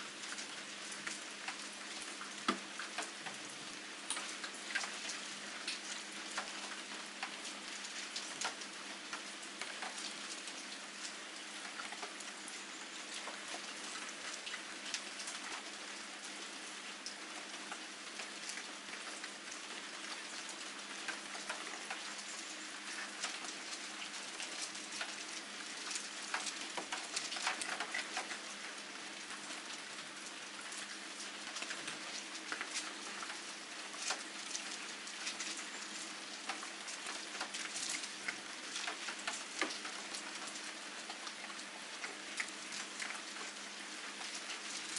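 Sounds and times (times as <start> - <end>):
rain pattering on surfaces: 0.0 - 44.9.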